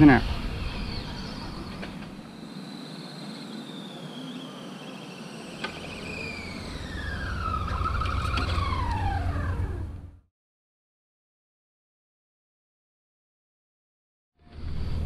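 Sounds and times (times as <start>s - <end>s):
electric motor and gear whine: 0.0s - 10.2s.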